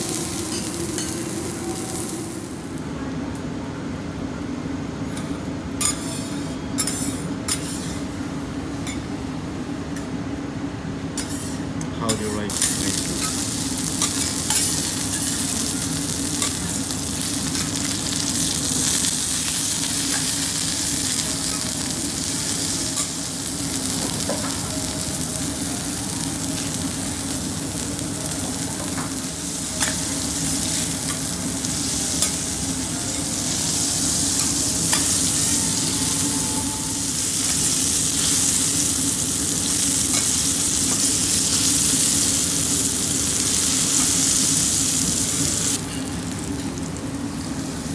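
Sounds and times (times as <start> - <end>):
steak sizzling on a griddle: 0.0 - 2.8, 12.5 - 47.9.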